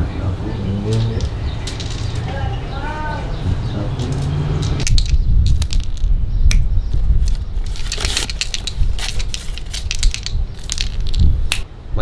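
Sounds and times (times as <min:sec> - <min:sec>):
dice clattering on concrete: 0:00.9 - 0:02.4, 0:04.0 - 0:06.2, 0:07.3 - 0:11.6.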